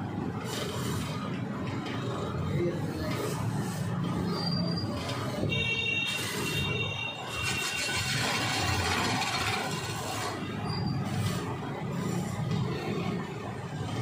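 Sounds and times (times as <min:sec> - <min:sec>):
wood lathe running: 0:07.4 - 0:10.3
chisel scraping spinning wood: 0:07.4 - 0:10.4.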